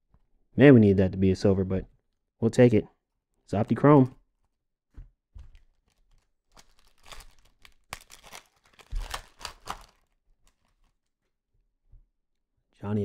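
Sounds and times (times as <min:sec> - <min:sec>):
plastic wrapper crinkling and tearing: 0:05.5 - 0:11.2.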